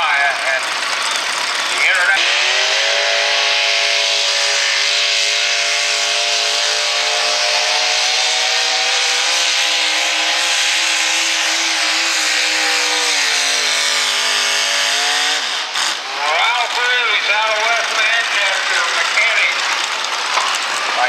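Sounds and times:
engine running at high revs: 0.0s - 21.0s.

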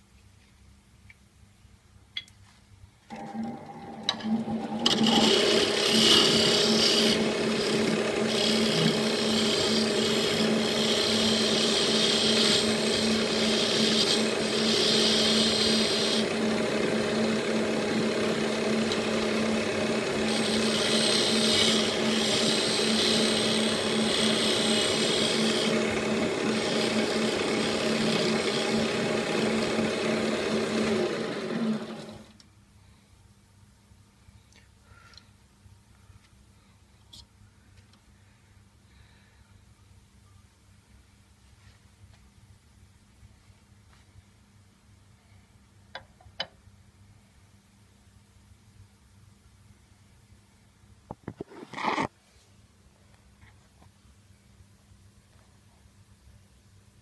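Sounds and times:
lathe motor hum: 3.1s - 32.4s
turning tool cutting rasp: 4.1s - 32.3s.

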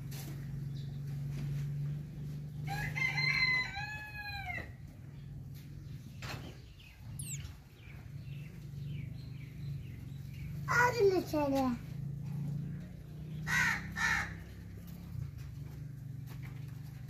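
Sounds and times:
rooster crowing: 2.7s - 4.7s
brief high chirp: 7.2s - 7.5s.

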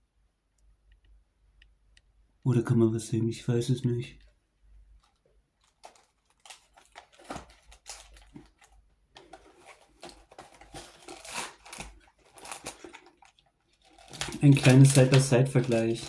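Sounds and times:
candy packaging crinkling: 4.9s - 16.0s.

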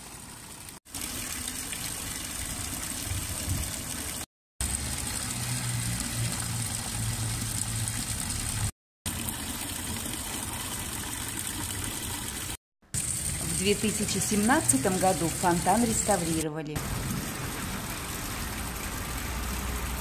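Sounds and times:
fountain water splashing: 0.0s - 20.0s.

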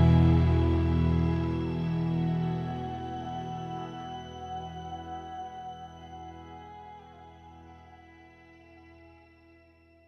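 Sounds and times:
sustained instrumental chords: 0.0s - 7.8s.

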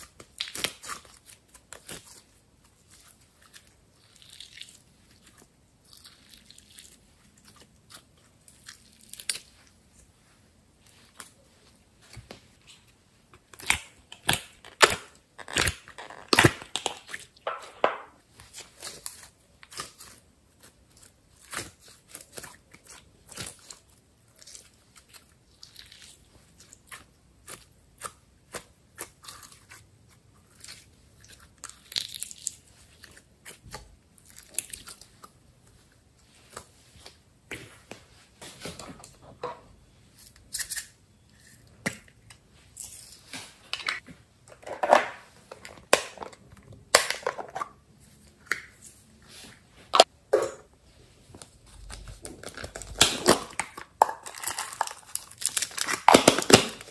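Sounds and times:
slime crackling and popping: 0.0s - 7.0s, 13.5s - 17.4s, 51.8s - 56.9s
plastic containers handled: 14.1s - 18.2s, 43.4s - 47.8s.

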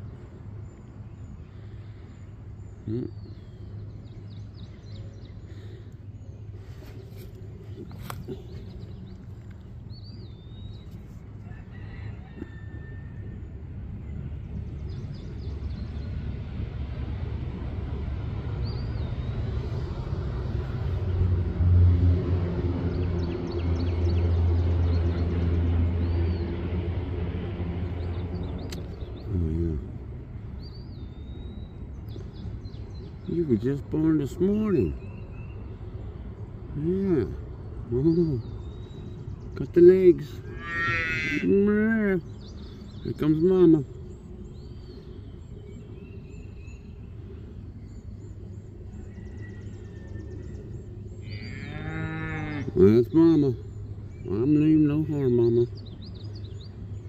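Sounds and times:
birds chirping: 0.0s - 57.0s
low outdoor rumble: 0.0s - 57.0s
faint bird chirps: 0.8s - 13.0s, 41.4s - 51.9s
cow mooing: 40.5s - 41.6s, 51.2s - 52.8s.

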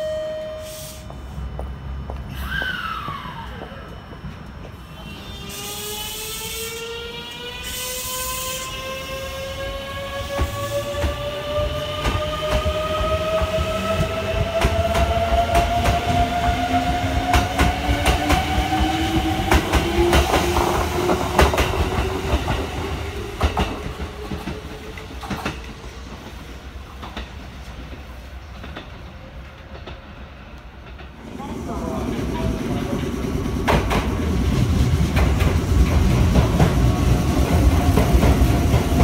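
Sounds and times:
train wheels clacking over rail joints: 32.9s - 34.3s.

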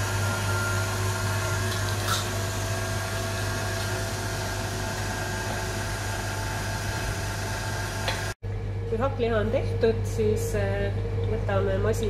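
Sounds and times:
stand mixer motor hum: 0.0s - 8.4s.

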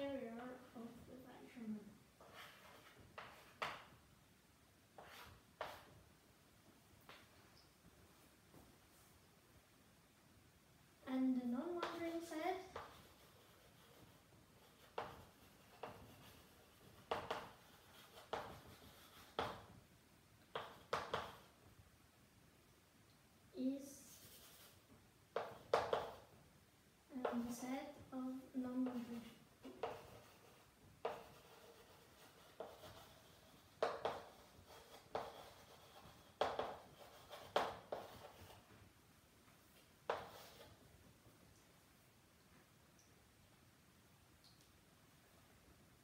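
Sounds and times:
chalk tapping and scraping on blackboard: 2.2s - 4.0s, 5.0s - 6.0s, 11.5s - 19.8s, 20.4s - 21.6s, 24.0s - 26.4s, 27.2s - 38.8s, 39.7s - 40.8s.

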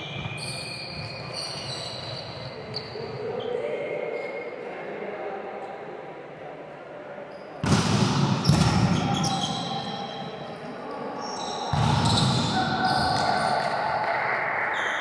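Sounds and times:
volleyballs hitting court floor: 7.6s - 9.4s, 11.7s - 13.8s.

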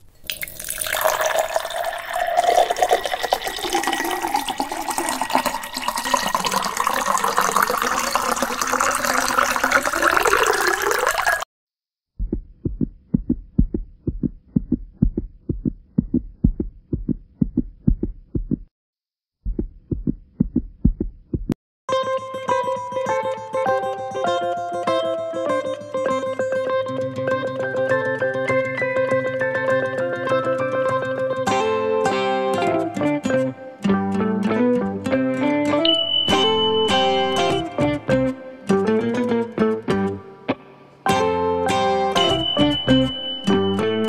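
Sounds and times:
running water: 0.2s - 11.5s
low double thumps: 12.2s - 18.7s, 19.4s - 21.6s.

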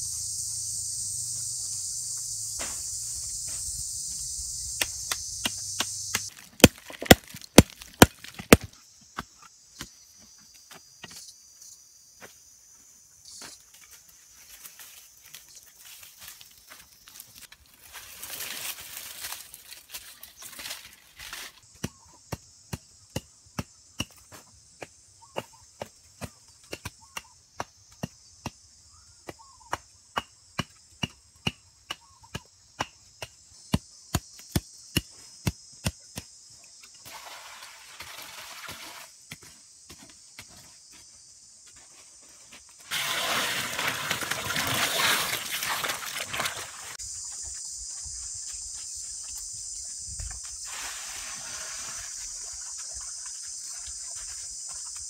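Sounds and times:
high insect drone: 0.0s - 25.3s, 45.4s - 55.0s.

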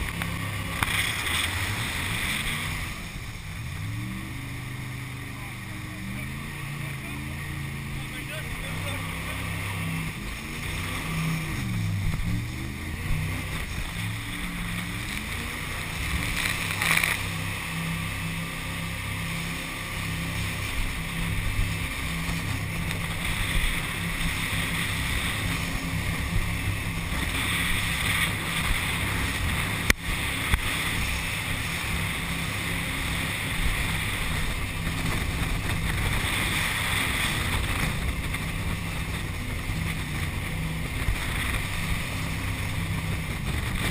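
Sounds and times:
jet boat engine running hard: 0.0s - 43.9s
rushing water spray: 0.0s - 43.9s
wind on microphone: 9.2s - 43.9s.

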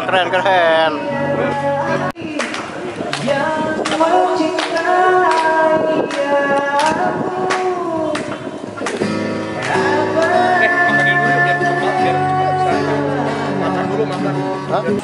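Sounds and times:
man singing into microphone: 0.0s - 15.0s
acoustic guitar strumming: 3.1s - 15.0s.

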